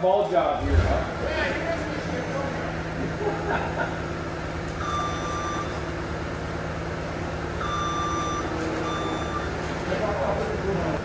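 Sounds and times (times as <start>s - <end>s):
machine engine running: 0.6s - 11.0s
reversing alarm beeps: 4.8s - 6.0s, 7.6s - 9.8s.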